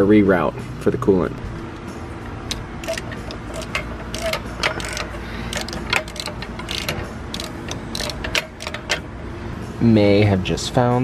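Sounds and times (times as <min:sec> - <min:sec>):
wrench clicking on bolt: 0:02.5 - 0:09.0.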